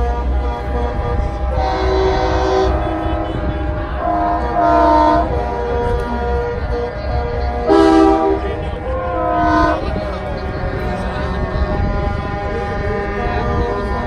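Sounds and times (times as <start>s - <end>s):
diesel trucks rumbling: 0.0s - 14.0s
truck air horn blasts: 0.0s - 14.0s.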